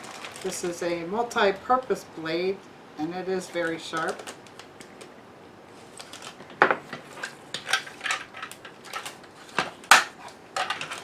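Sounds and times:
plastic bag crinkling: 0.0s - 1.6s, 3.4s - 5.1s, 5.7s - 11.0s.

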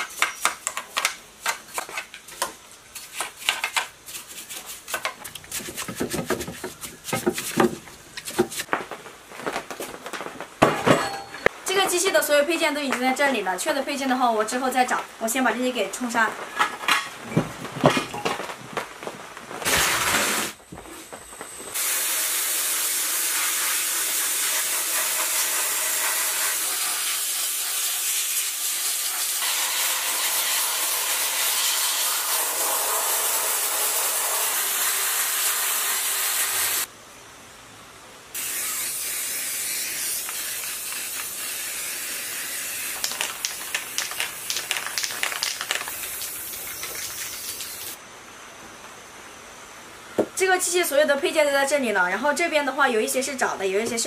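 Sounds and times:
sandblaster hissing: 19.6s - 20.6s, 21.7s - 36.9s, 38.4s - 48.0s
spray painting hiss: 21.8s - 36.9s, 38.4s - 48.0s.

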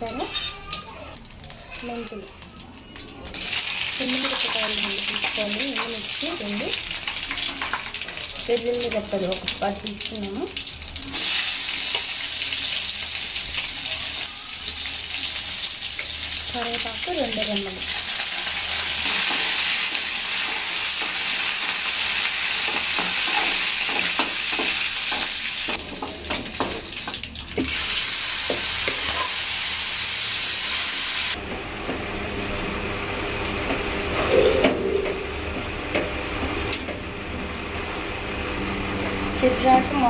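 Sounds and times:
hot oil sizzling: 0.0s - 40.0s
spoon scraping a pan: 22.6s - 26.7s, 28.5s - 29.4s.

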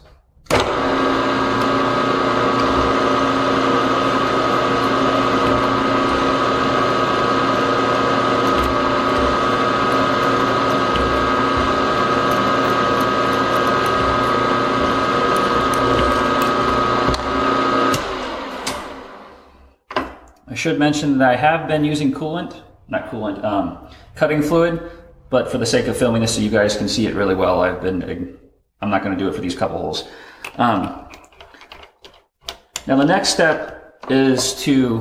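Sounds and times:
milling machine whine: 0.5s - 19.5s
drill boring into metal: 0.6s - 19.0s.

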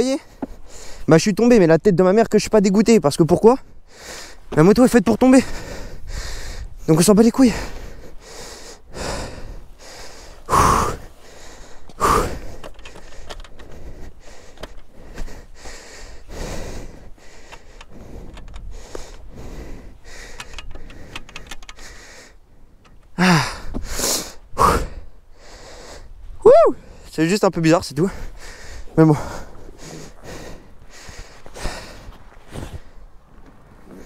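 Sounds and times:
heavy breathing: 0.2s - 1.1s, 3.6s - 4.6s, 5.3s - 27.2s, 28.0s - 34.0s
person grunting: 10.5s - 11.0s, 12.0s - 12.5s, 23.2s - 23.7s.

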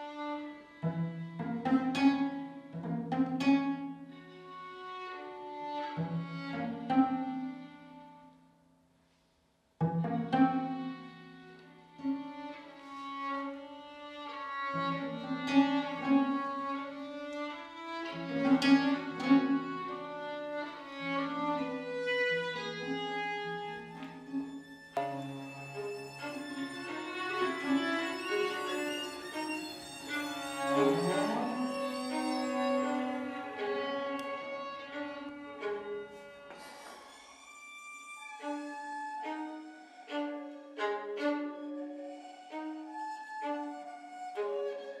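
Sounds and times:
violin melody: 0.0s - 8.5s, 9.8s - 45.0s
viola da gamba low notes: 23.7s - 36.9s.

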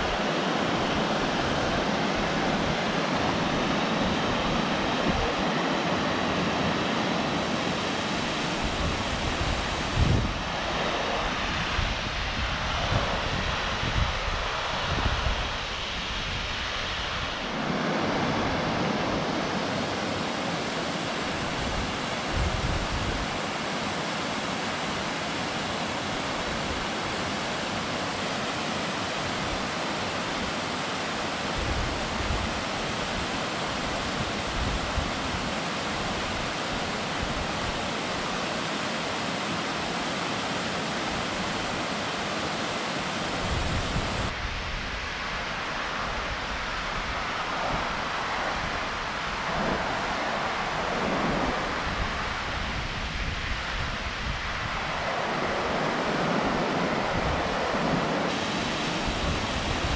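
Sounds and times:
wind rumbling on microphone: 0.0s - 23.4s, 31.5s - 38.4s, 43.1s - 59.9s
waterfall rushing: 0.0s - 59.9s.

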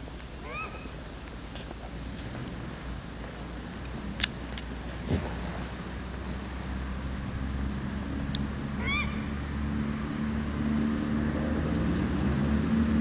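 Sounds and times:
low hum: 0.0s - 13.0s
duck call: 0.4s - 0.9s, 8.8s - 9.2s.

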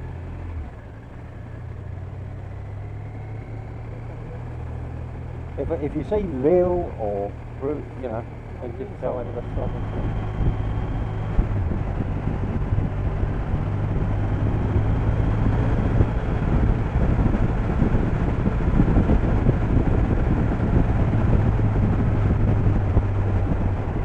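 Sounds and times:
motorcycle engine running: 0.0s - 24.0s
road noise: 0.0s - 24.0s
wind rushing: 9.1s - 24.0s.

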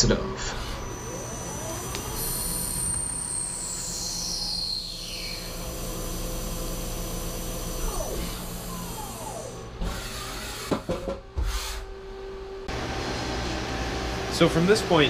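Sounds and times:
lathe humming: 0.0s - 10.9s
short falling whines: 0.0s - 12.7s.

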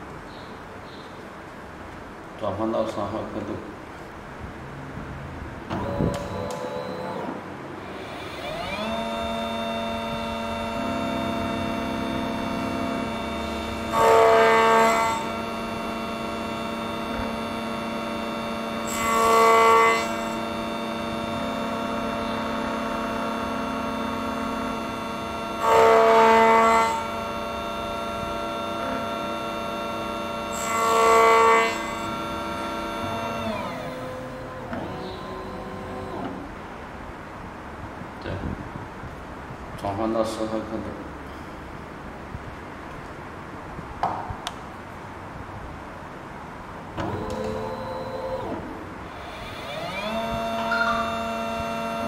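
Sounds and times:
key cutting machine motor whine: 5.7s - 36.5s, 47.0s - 52.0s.

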